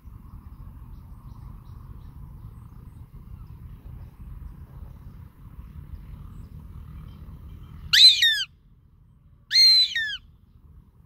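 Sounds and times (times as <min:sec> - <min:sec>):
hawk calling: 0:08.0 - 0:08.5, 0:09.5 - 0:10.2.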